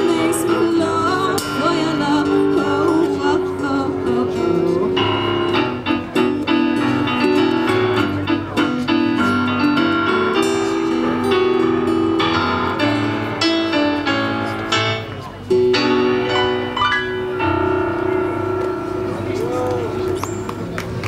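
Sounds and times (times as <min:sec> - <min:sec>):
acoustic guitar: 0:00.0 - 0:21.0
electric keyboard playing piano: 0:00.0 - 0:21.0.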